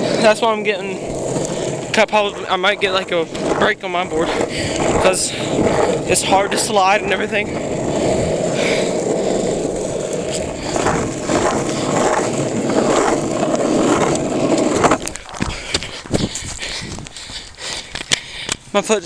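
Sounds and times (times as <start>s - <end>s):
longboard wheels rolling on pavement: 0.0s - 19.0s.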